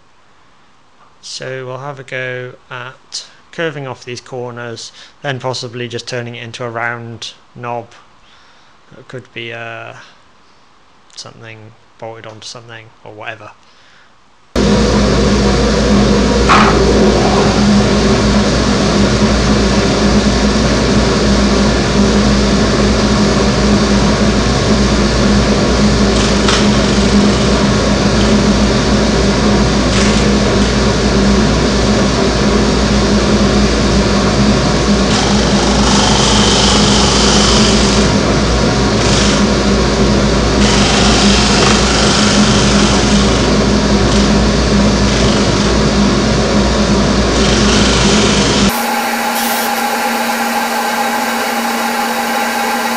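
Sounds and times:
disc sander running: 0:47.5 - 0:52.9.

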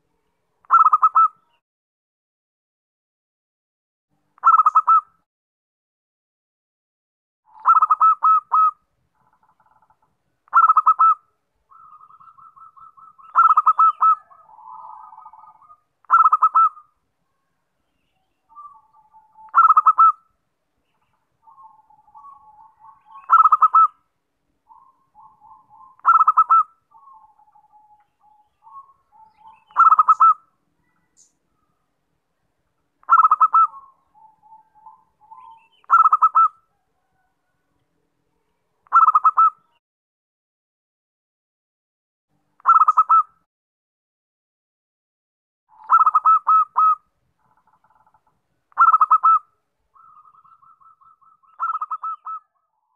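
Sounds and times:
dove cooing song: 0:00.6 - 0:01.6, 0:04.4 - 0:05.2, 0:07.5 - 0:17.4, 0:18.3 - 0:20.2, 0:21.0 - 0:24.0, 0:24.7 - 0:31.8, 0:33.0 - 0:37.8, 0:38.8 - 0:39.8, 0:42.6 - 0:43.4, 0:45.7 - 0:52.9.

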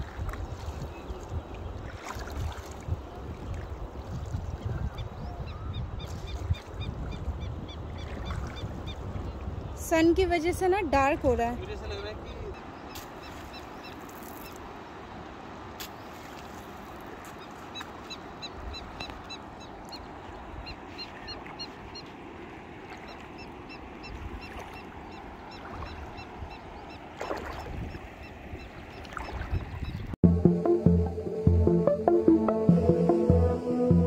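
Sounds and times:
wind buffeting microphone: 0:00.0 - 0:13.8, 0:18.0 - 0:21.9, 0:23.7 - 0:30.2.

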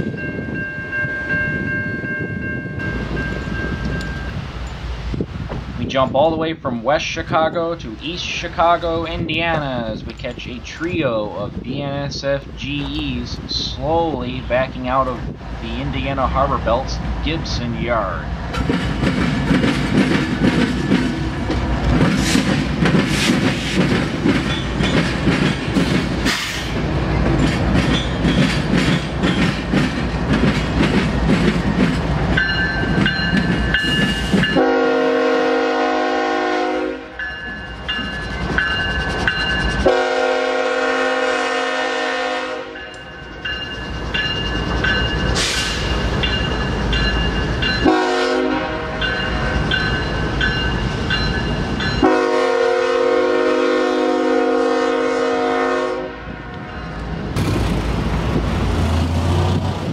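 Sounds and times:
bell ringing: 0:00.0 - 0:04.8, 0:32.4 - 0:34.6, 0:37.2 - 0:39.8, 0:42.8 - 0:47.9, 0:49.0 - 0:52.1
diesel engines rumbling: 0:02.6 - 0:36.4, 0:56.5 - 0:59.9
train wheels clicking over rails: 0:18.4 - 0:34.6, 0:37.7 - 0:40.0, 0:42.8 - 0:48.0, 0:57.0 - 0:59.9
locomotive horn blasts: 0:34.5 - 0:37.2, 0:39.8 - 0:42.9, 0:47.8 - 0:49.1, 0:52.0 - 0:56.4.

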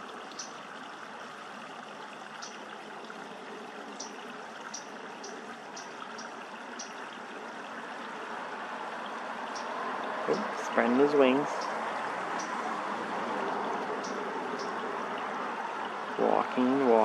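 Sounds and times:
flowing water: 0:00.0 - 0:17.0
small bird chirping: 0:14.0 - 0:14.8.

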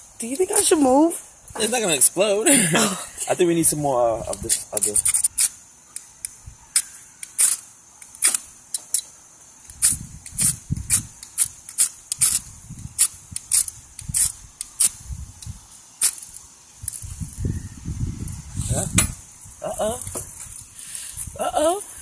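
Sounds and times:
striker scraping fire-starter rod: 0:04.3 - 0:17.2.

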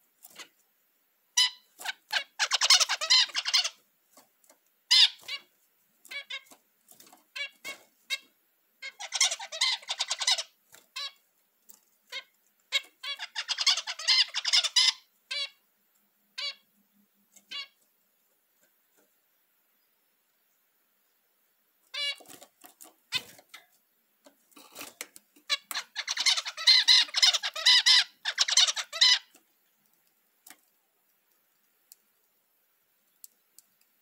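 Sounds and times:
finch nasal calls: 0:01.4 - 0:03.8, 0:04.9 - 0:05.5, 0:07.4 - 0:11.2, 0:12.1 - 0:15.6, 0:24.6 - 0:29.4.

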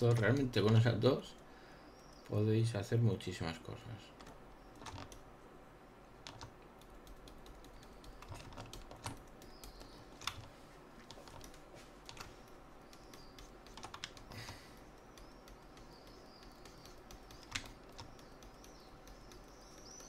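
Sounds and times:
computer keyboard and mouse clicks: 0:00.0 - 0:00.9, 0:04.2 - 0:05.2, 0:06.2 - 0:20.0
low steady hum: 0:00.0 - 0:20.0.

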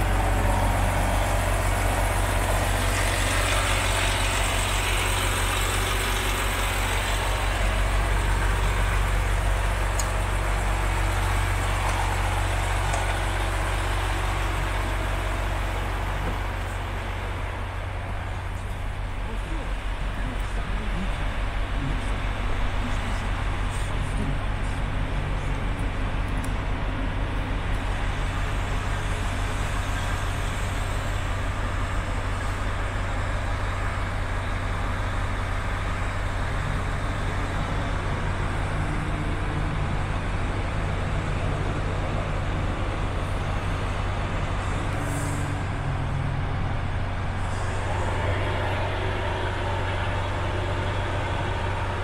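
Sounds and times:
diesel engine idling: 0:00.0 - 0:52.0
higher hum: 0:38.1 - 0:52.0.

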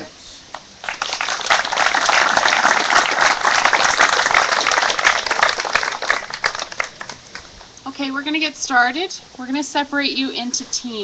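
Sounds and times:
crowd applauding: 0:00.8 - 0:07.7.

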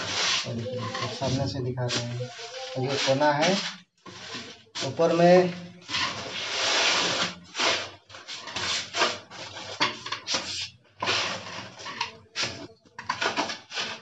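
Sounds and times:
trowel scraping mortar: 0:00.0 - 0:14.0.

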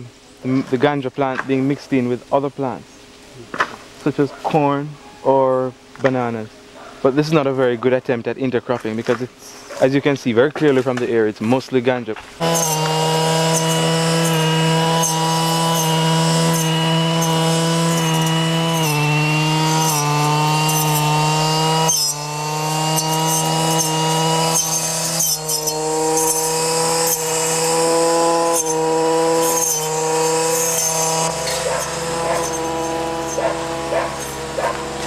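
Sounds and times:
brush cutter engine at high revs: 0:12.4 - 0:35.0.

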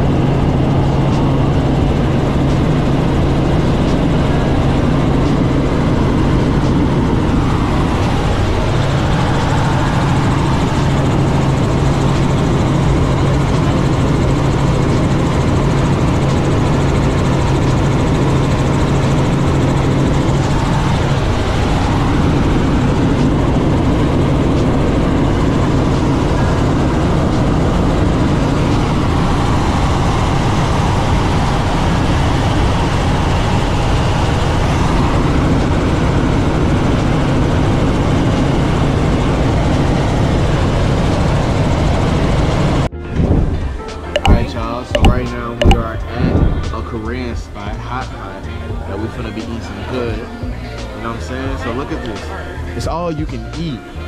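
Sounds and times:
helicopter engine and rotor drone: 0:00.0 - 0:42.9.

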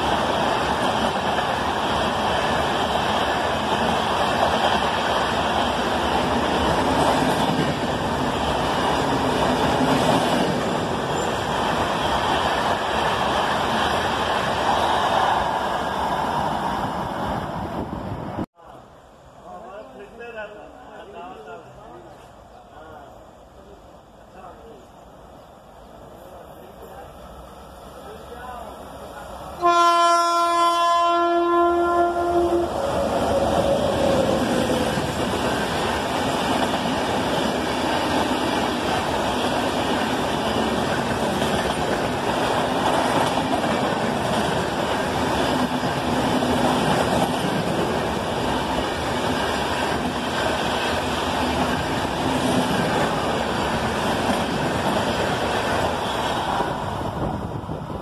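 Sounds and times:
train rumble and wheel noise: 0:00.0 - 0:58.0
locomotive horn blast: 0:29.6 - 0:32.8.

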